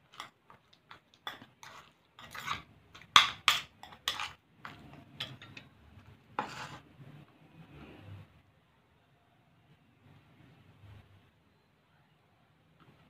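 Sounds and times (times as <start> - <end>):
spoon scraping ceramic bowl: 0.9 - 5.7, 6.3 - 6.9.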